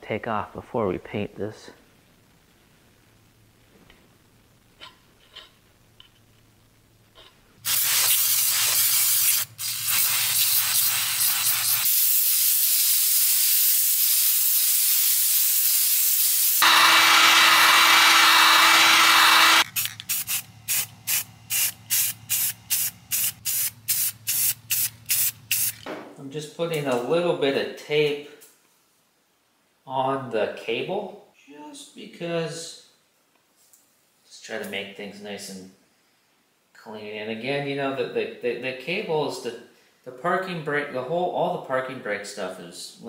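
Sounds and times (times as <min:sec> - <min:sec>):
spray paint hissing: 0:07.6 - 0:16.7, 0:18.8 - 0:25.9.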